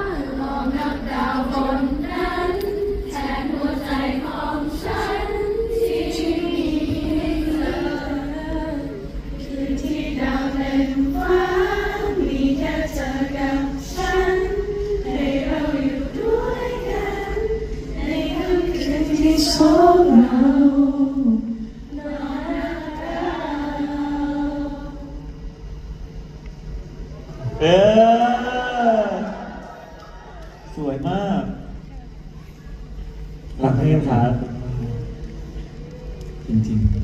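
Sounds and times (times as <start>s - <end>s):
many voices singing in unison: 0.0s - 25.4s.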